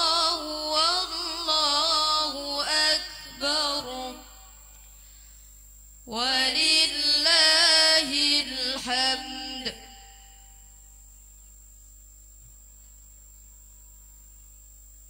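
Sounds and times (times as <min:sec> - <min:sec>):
woman chanting melodically: 0:00.0 - 0:04.6, 0:06.1 - 0:10.6.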